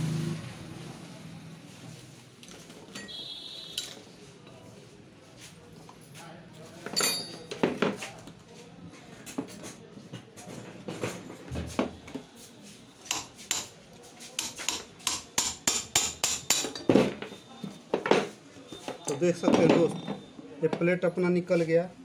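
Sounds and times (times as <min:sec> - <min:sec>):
hammer striking metal rod: 0:13.1 - 0:13.7, 0:14.4 - 0:16.9.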